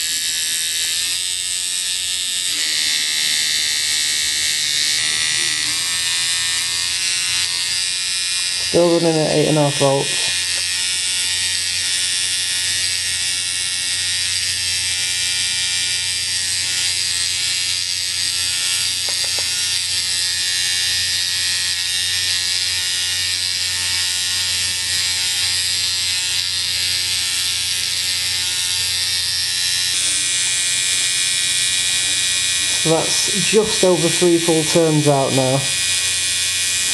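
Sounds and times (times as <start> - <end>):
tattoo machine buzzing: 0.0 - 36.9.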